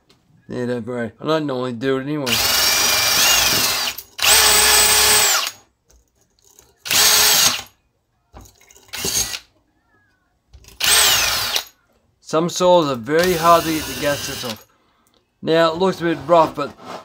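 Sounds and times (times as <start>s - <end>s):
drill motor whine: 2.3s - 5.5s, 10.8s - 11.6s, 13.2s - 14.6s
drill with wire brush scrubbing: 2.3s - 5.6s, 6.8s - 7.7s, 8.9s - 9.4s, 10.8s - 11.7s, 13.2s - 14.6s.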